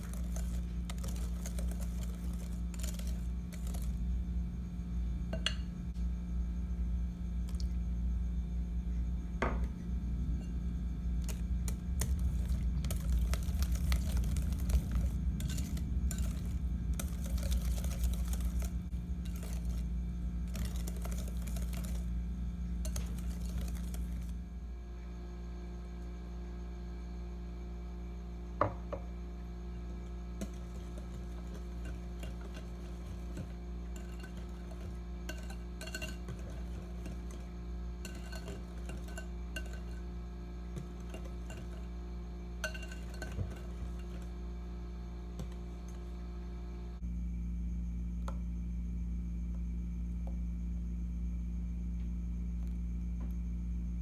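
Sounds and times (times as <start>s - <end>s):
whisk stirring batter in bowl: 0.0s - 4.1s, 11.2s - 24.4s, 30.4s - 44.4s
steady low hum: 0.0s - 54.0s.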